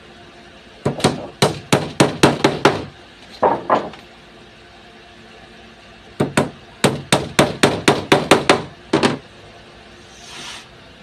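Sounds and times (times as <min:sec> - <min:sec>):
hammer striking wood: 0:00.8 - 0:04.0, 0:06.2 - 0:09.2
hiss: 0:10.0 - 0:10.7.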